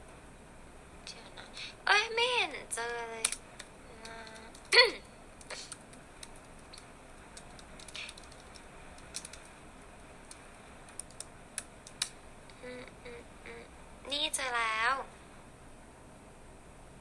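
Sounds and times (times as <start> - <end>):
fingers tapping phone touchscreen: 5.5 - 9.5.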